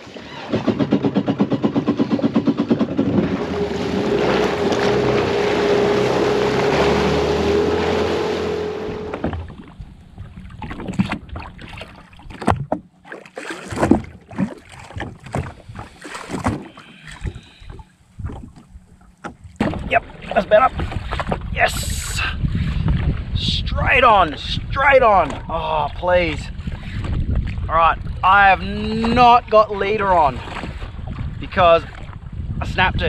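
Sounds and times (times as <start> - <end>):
water slapping hull: 0.0 - 33.0
knocks and clicks: 0.5 - 3.5
jet ski engine running: 0.5 - 10.6
wind and spray: 2.0 - 11.4, 19.4 - 28.3.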